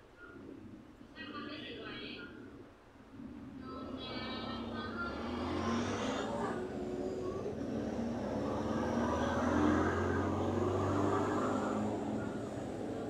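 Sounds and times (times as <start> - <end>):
passing motor vehicle rumble: 3.2 - 13.0.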